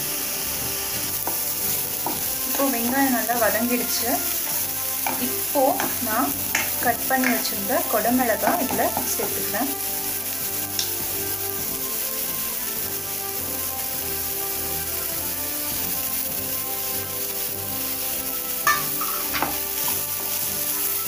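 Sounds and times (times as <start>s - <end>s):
vegetables sizzling in oil: 0.0s - 21.0s
spatula knocking against pan: 4.5s - 7.4s.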